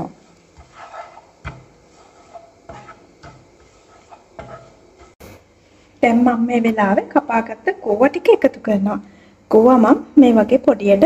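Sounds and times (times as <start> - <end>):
spatula scraping a frying pan: 0.0 - 5.3
spatula knocking against pan: 0.6 - 5.2.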